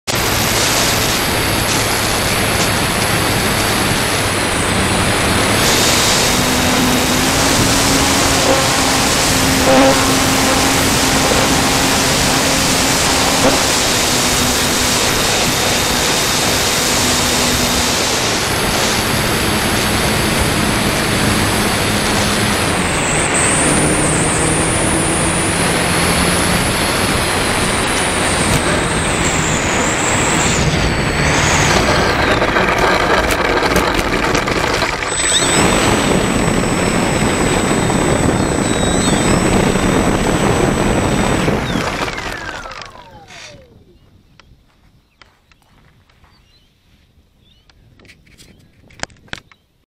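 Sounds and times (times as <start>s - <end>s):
propeller spinning: 0.0s - 44.1s
electric motor whine: 0.1s - 44.2s
wind rush over microphone: 0.1s - 45.1s.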